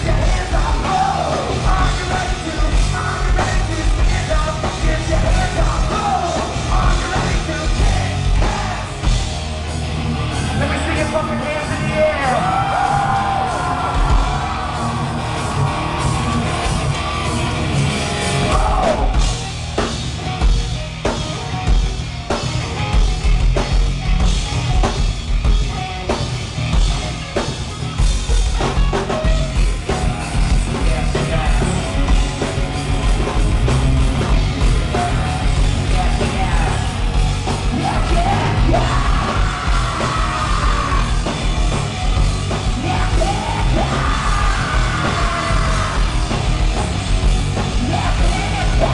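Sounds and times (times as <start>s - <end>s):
hard rock band playing: 0.0s - 48.9s
person yelling vocals: 18.5s - 19.2s.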